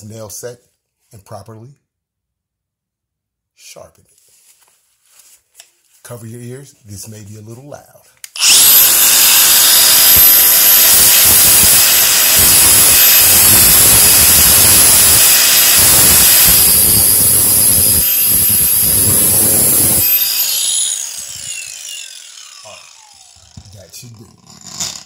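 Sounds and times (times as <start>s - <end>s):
angle grinder grinding steel: 8.4s - 25.0s.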